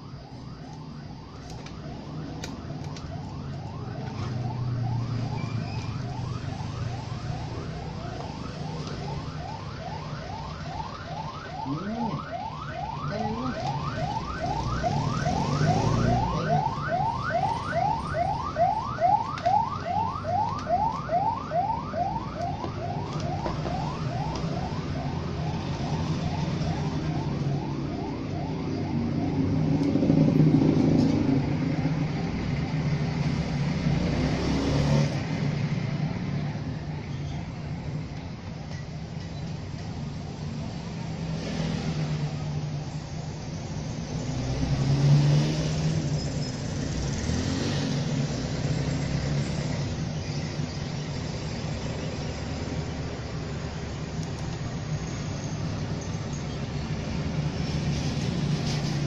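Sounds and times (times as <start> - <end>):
electronic alarm siren whooping: 0.0 - 29.8
low traffic rumble: 0.0 - 59.0.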